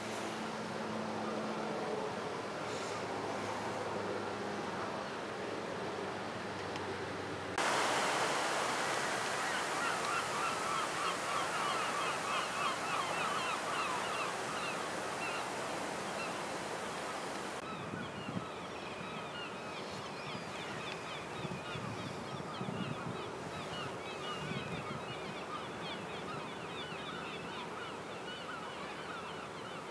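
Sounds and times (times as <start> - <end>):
steady rushing noise: 7.5 - 17.6
flock of birds calling: 8.8 - 17.7.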